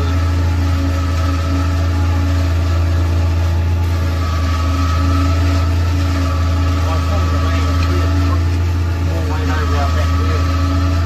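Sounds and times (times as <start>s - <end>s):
held machine tones: 0.0s - 11.0s
tractor engine drone: 0.0s - 11.0s.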